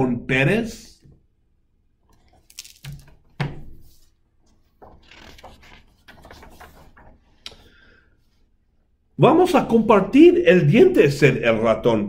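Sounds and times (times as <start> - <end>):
paper page turning: 2.1 - 7.6
book knocking on wooden table: 3.0 - 3.9.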